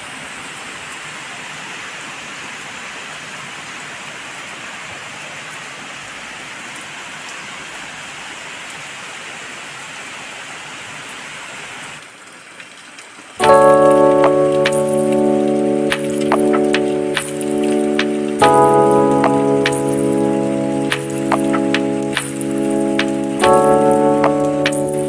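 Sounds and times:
heavy rain pouring: 0.0 - 25.0
rain drops ticking: 12.0 - 25.0.

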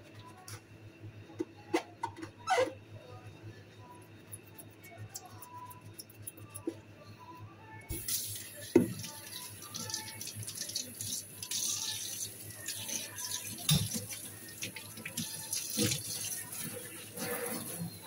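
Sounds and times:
tap water running into container: 7.9 - 18.0.

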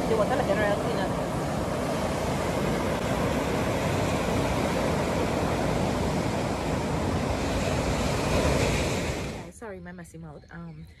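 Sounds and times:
surf breaking on beach: 0.0 - 9.6.

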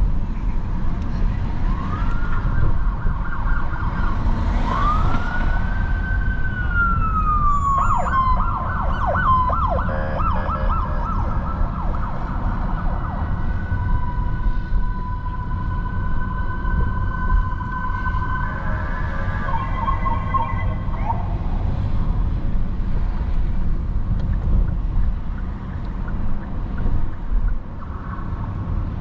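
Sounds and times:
city traffic rumble: 0.0 - 29.0
emergency siren: 1.5 - 22.0.

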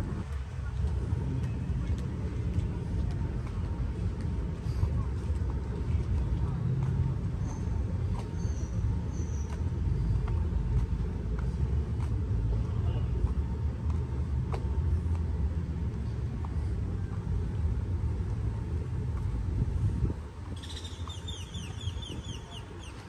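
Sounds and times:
low town ambience rumble: 0.0 - 23.0.

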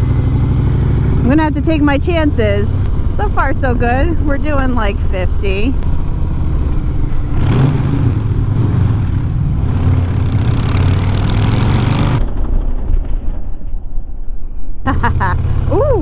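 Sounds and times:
motorcycle engine running: 0.0 - 12.4.

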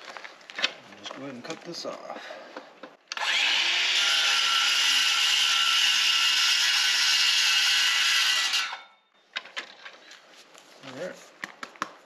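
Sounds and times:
circular saw cutting pipe: 3.1 - 8.9.

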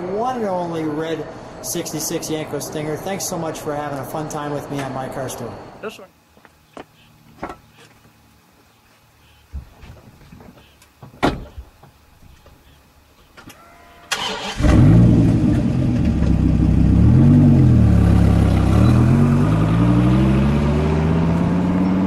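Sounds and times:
car engine starting and revving: 14.1 - 22.0.

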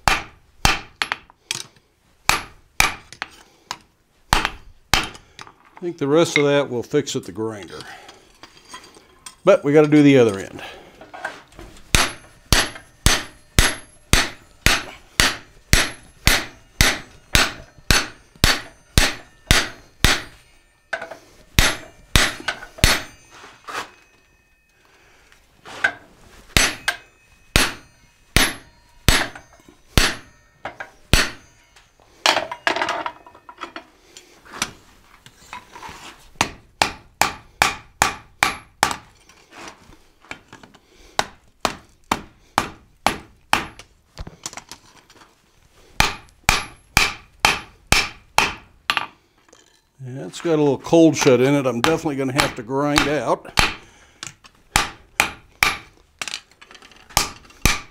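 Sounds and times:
hammer striking hot steel: 0.0 - 1.3, 2.3 - 3.3, 4.3 - 5.2, 11.9 - 24.2, 25.8 - 33.2, 36.4 - 39.1, 41.2 - 43.8, 46.0 - 49.1, 51.1 - 53.9, 54.7 - 56.0, 57.2 - 57.9
scraping on metal: 15.9 - 24.3, 25.6 - 36.3.

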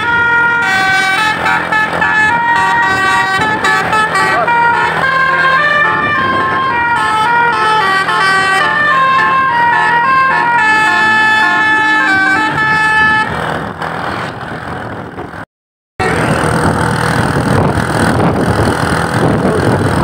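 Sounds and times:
multi-tone air horn melody: 0.0 - 13.3
bus running and road noise: 0.0 - 20.0.

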